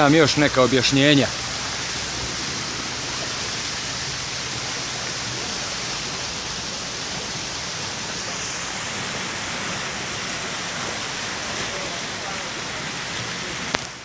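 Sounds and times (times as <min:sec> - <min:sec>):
steady hissing rush: 0:00.0 - 0:14.0.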